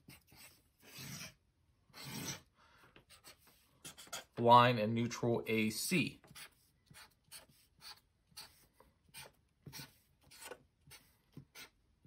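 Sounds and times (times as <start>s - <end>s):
marker pen strokes on paper: 6.3s - 11.8s.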